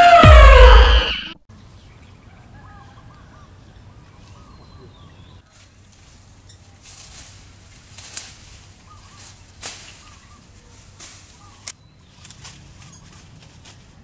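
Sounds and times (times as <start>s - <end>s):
branches and leaves rustling: 5.4s - 14.0s
twigs snapping: 7.0s - 8.6s, 9.2s - 10.2s.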